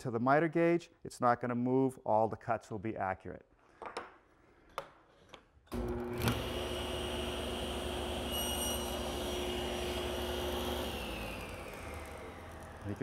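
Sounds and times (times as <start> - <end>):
saw blade spinning down: 5.7 - 13.0
saw cutting wood: 5.7 - 13.0
table saw running: 5.7 - 13.0.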